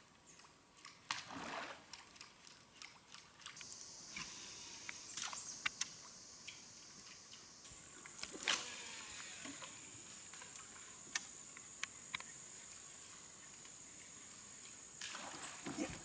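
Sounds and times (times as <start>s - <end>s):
high insect drone: 3.6s - 16.0s.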